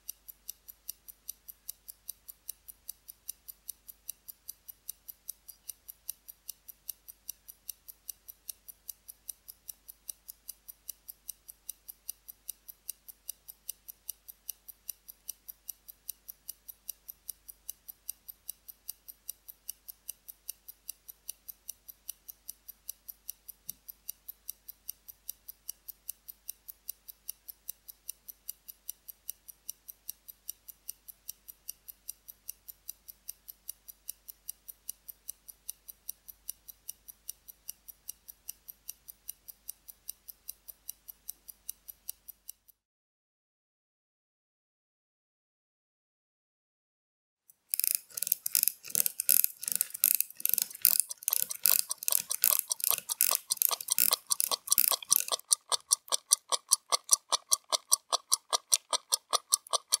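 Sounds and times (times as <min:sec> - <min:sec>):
wristwatch ticking: 0:00.0 - 0:42.8, 0:47.5 - 1:00.0.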